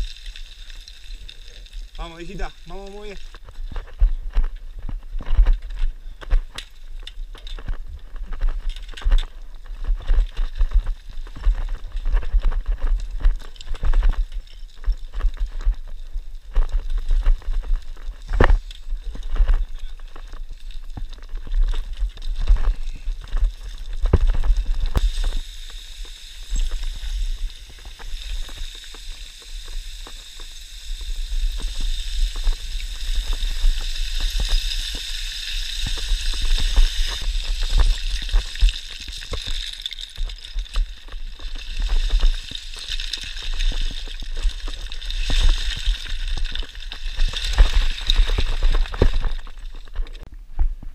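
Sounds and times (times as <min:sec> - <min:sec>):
sliding gravel hiss: 0:00.0 - 0:50.3
boots crunching on scree: 0:02.0 - 0:25.5
wind rumble on microphone: 0:02.2 - 0:25.5, 0:40.5 - 0:50.9
stones clattering: 0:32.4 - 0:50.2.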